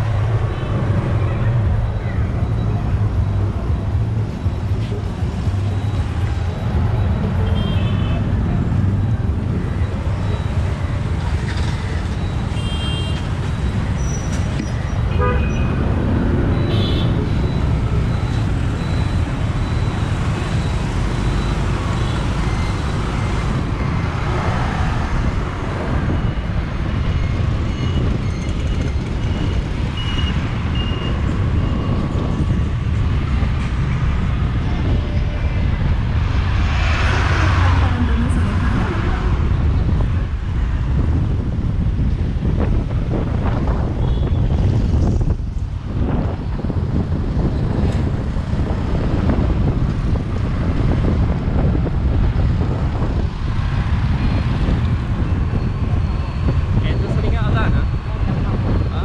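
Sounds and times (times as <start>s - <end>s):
vehicles passing: 0.0s - 59.0s
horns tooting: 15.0s - 15.8s.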